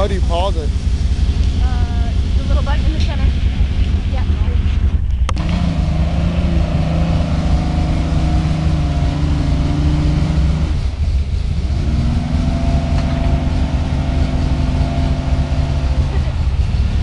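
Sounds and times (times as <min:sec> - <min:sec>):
truck engine rumbling: 0:00.0 - 0:17.0.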